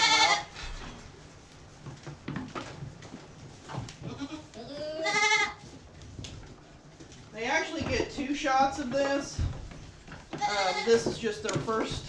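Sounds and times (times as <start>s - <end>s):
goat bleating: 0.0s - 0.5s, 4.1s - 5.6s, 10.4s - 11.0s
faint knocks and rustling: 0.5s - 12.0s.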